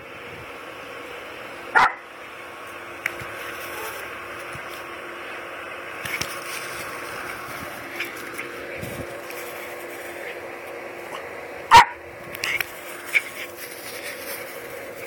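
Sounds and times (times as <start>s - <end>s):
faint steady hum: 0.0s - 15.0s
dog barking: 1.8s - 2.0s, 11.7s - 12.0s.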